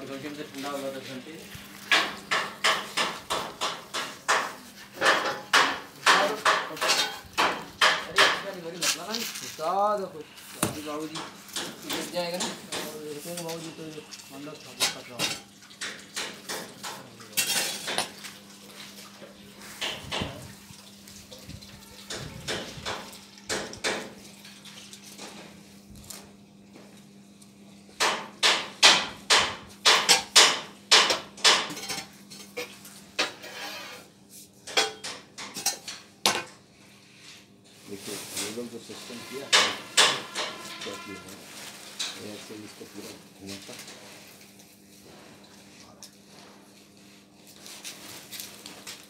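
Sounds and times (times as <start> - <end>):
hammer strikes on metal: 1.9 - 8.5, 10.6 - 13.0, 22.1 - 24.1, 28.0 - 32.0, 39.5 - 41.0
iron poker clanking on metal doors: 39.5 - 41.1.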